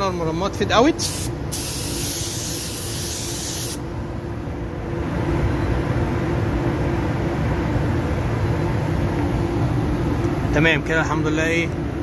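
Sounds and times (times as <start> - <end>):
spray gun hissing: 1.0 - 3.8.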